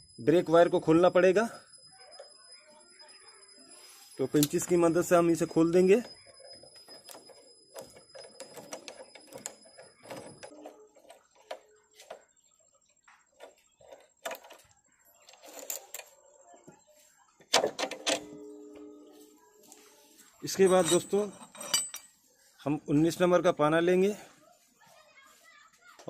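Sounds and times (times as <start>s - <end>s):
small metallic clicks and scrapes: 4.0s - 16.3s
metal clatter: 20.6s - 22.1s.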